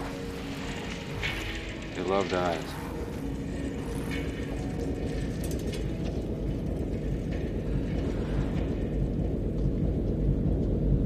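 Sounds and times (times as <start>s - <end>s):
low steady city rumble: 0.0s - 11.0s.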